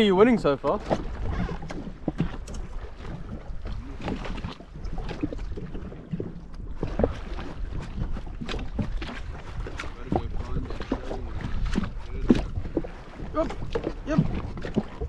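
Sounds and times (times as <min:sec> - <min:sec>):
waves lapping against hull: 0:00.0 - 0:15.0
wind rumble on microphone: 0:00.0 - 0:15.0.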